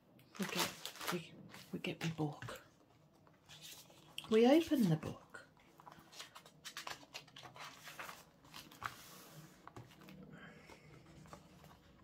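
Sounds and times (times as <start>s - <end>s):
paper rustling and tapping: 5.6s - 12.0s
paper sliding on table: 8.8s - 9.9s.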